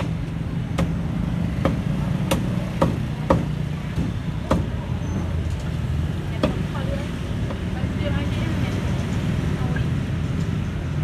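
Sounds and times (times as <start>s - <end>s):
street traffic hum: 0.0s - 11.0s
cleaver chopping on wooden block: 1.6s - 4.8s.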